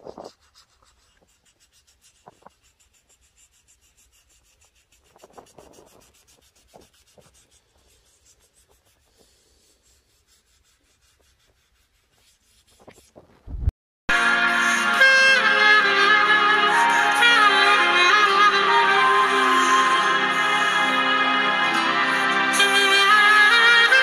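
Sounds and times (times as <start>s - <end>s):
pad scratching over relief: 0.0s - 13.4s.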